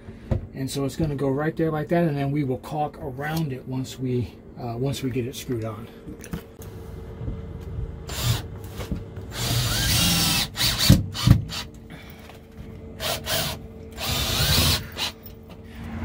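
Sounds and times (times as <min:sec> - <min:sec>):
cordless drill driving screws: 0:08.1 - 0:11.7, 0:13.0 - 0:15.2.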